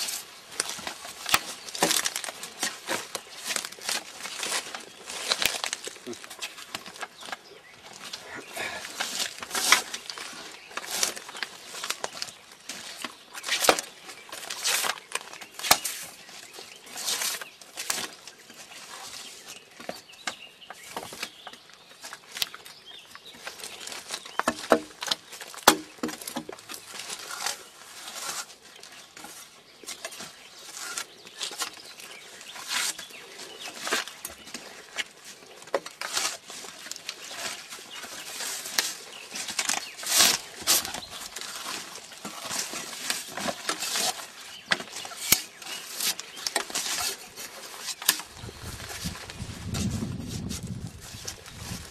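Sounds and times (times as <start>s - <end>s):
bark strips tearing: 32.6s - 51.9s.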